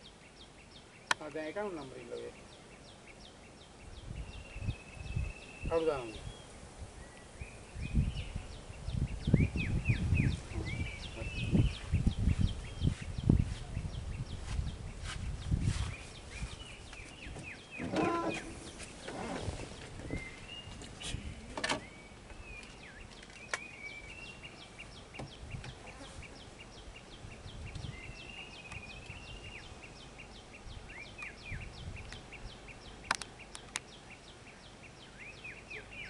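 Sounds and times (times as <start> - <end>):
birds chirping: 0.0 - 36.0
sharp clicks: 33.1 - 33.9.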